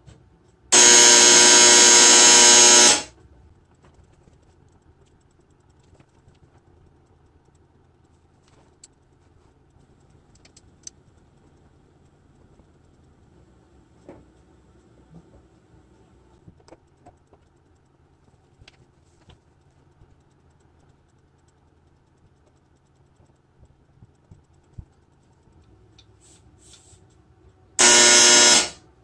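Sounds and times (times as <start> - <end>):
loud steady electric buzz: 0.7 - 3.4, 27.6 - 29.0.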